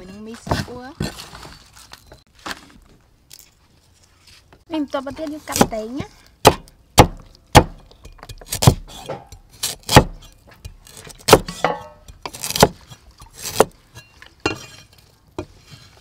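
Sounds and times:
cleaver chopping on wooden block: 5.5s - 13.8s.

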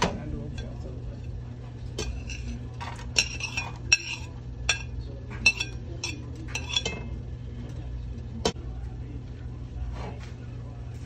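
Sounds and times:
ceramic plate clinking on steel pot: 1.9s - 7.2s.

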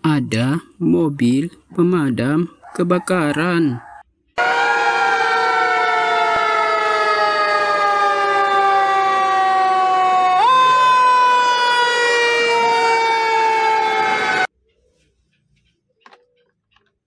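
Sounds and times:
second siren tone climbing: 3.8s - 14.5s
fire truck siren wailing: 3.9s - 14.5s.

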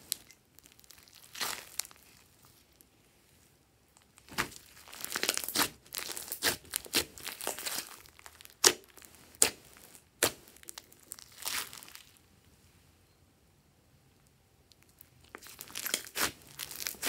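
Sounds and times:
slime squelching and crackling: 0.0s - 2.9s, 4.1s - 12.2s, 14.7s - 17.0s.

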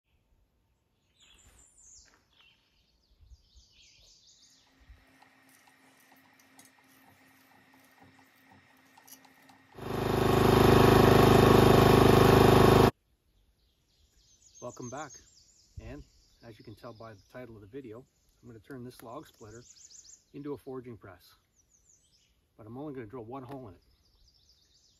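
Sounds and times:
small gasoline engine running: 4.6s - 12.9s.

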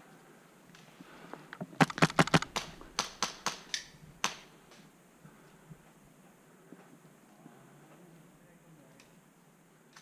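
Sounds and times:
airsoft gunfire: 1.8s - 4.5s.

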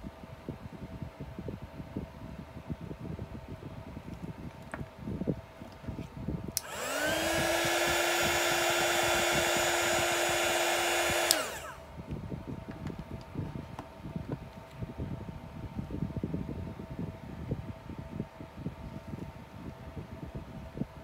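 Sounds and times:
heat gun fan humming: 6.4s - 14.4s
heat gun switch click: 6.6s - 11.8s.

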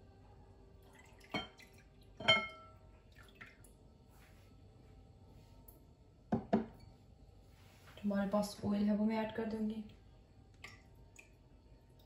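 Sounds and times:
milk pouring into glass bowl: 0.7s - 3.8s
clinks on glass: 2.2s - 2.7s.

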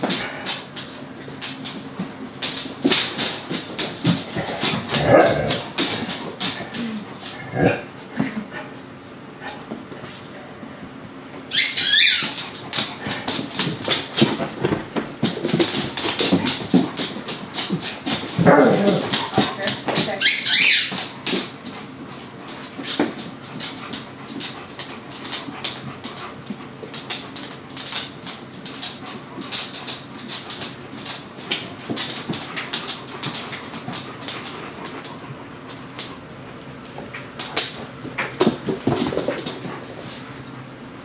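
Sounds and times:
claws clicking on floor: 0.0s - 8.4s, 11.5s - 40.6s
dogs scuffling: 0.0s - 41.0s
small dog noises: 4.0s - 8.4s, 11.4s - 14.7s, 15.8s - 22.4s
dog whimpering: 11.5s - 12.4s, 19.2s - 21.0s.

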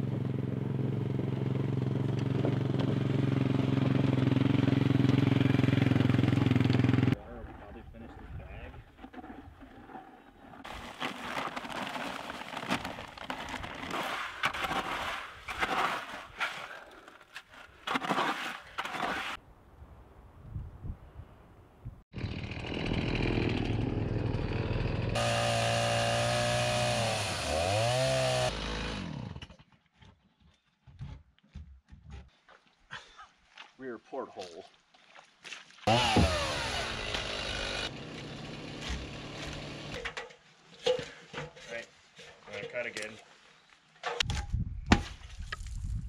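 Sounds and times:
chainsaw running: 22.2s - 29.6s, 35.9s - 40.0s.

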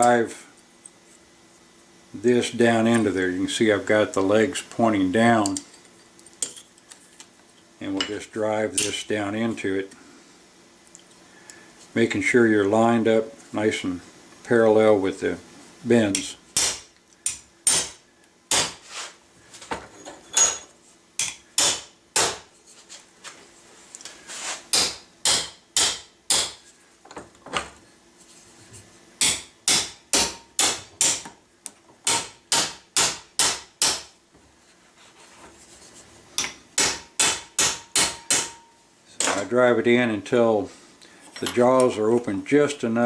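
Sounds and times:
hammer striking metal rod: 16.6s - 18.8s, 24.7s - 26.6s, 29.2s - 31.3s, 36.4s - 38.8s.

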